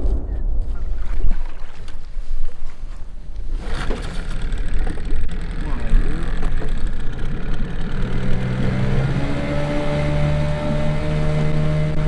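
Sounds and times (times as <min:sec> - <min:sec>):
rushing wind: 0:00.0 - 0:05.6
outboard motor running: 0:03.6 - 0:12.0.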